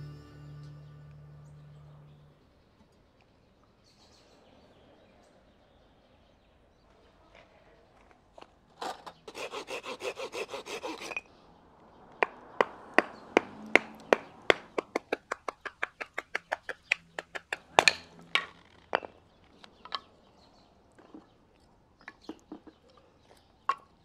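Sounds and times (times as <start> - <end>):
hand saw cutting branch: 8.8 - 11.2.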